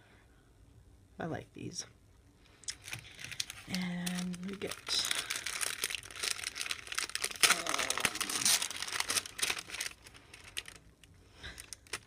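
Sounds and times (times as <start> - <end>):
plastic packaging crinkling: 2.6 - 12.0.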